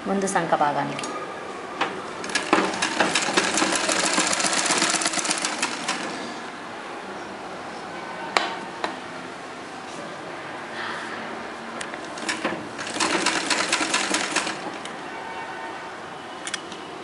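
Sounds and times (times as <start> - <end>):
sewing machine stitching: 2.2 - 6.4, 12.1 - 14.8.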